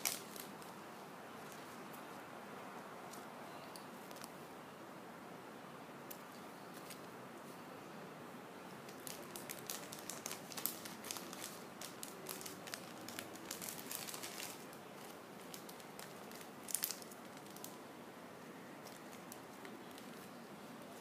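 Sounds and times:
plastic bag crinkling: 0.0s - 0.7s, 8.9s - 17.8s, 18.8s - 20.3s.

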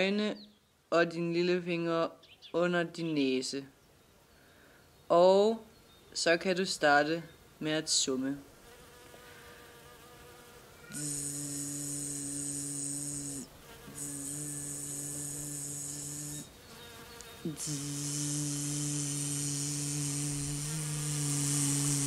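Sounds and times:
high hiss: 10.7s - 22.0s
person humming like a bee: 10.8s - 22.0s.

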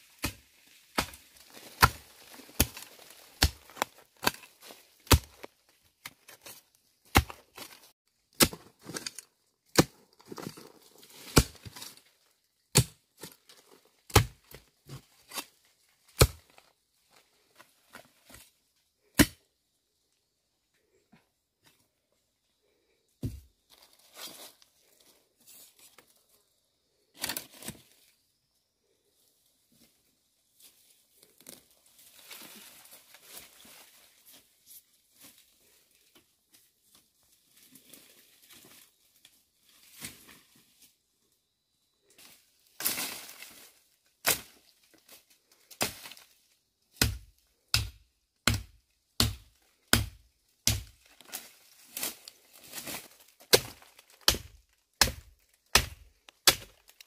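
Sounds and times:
rustling and crinkling: 51.1s - 57.0s.

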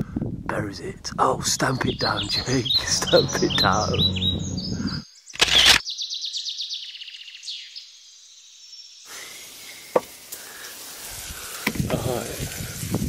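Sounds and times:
outdoor background noise: 5.0s - 13.0s.

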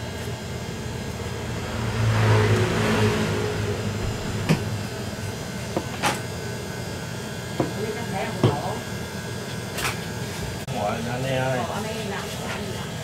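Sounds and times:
motor vehicle engine: 0.0s - 7.0s
steady low hum: 0.0s - 8.3s.

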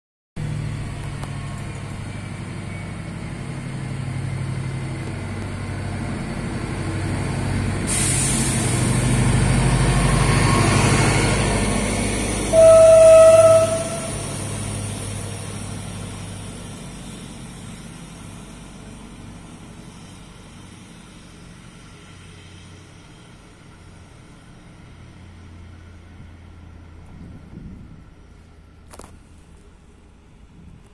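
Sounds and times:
diesel railcar engine drone: 0.4s - 30.9s
train wheel noise: 0.4s - 30.9s
train horn blast: 12.4s - 14.2s.

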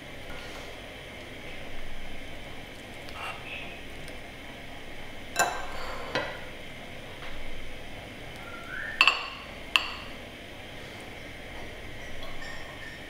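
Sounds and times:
spoon clinking on ceramic bowl: 12.2s - 13.0s.

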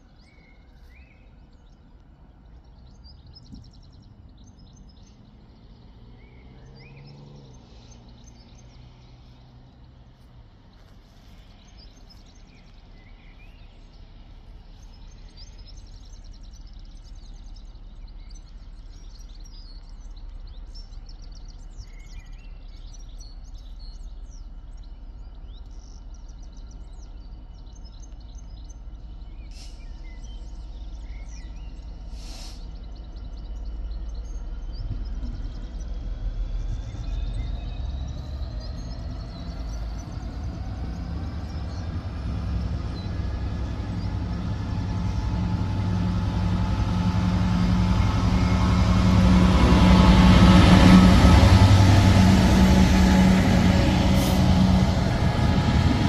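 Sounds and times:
diesel locomotive engine rumble: 0.0s - 56.0s
small birds chirping: 0.0s - 56.0s
locomotive whine: 30.4s - 56.0s.

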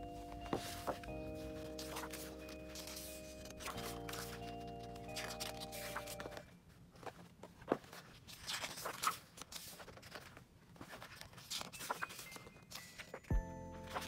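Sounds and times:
background music: 0.0s - 6.4s, 11.6s - 14.0s
book pages turning: 0.2s - 14.0s.

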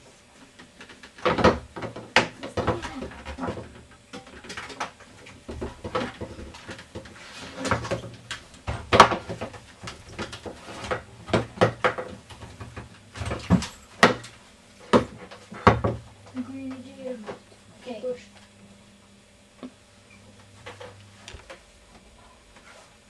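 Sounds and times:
rope ladder knocking against wall: 1.2s - 14.3s.

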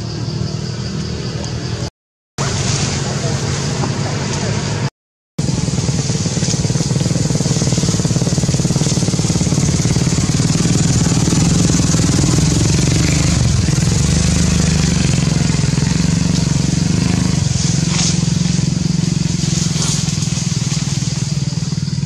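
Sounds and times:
small engine running: 5.4s - 22.0s.

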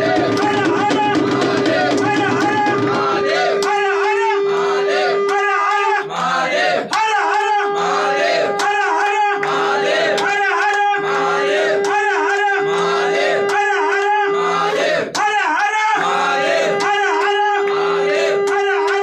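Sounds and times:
voices chanting devotional song: 0.0s - 19.0s
held drone note: 1.0s - 5.6s, 7.6s - 14.8s, 16.2s - 19.0s.

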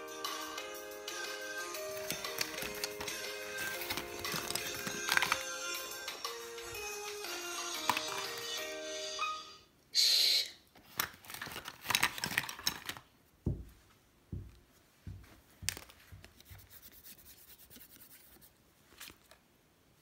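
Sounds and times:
rustling handling noises: 1.9s - 5.6s, 10.8s - 19.6s
soft low thumps: 13.5s - 15.4s.

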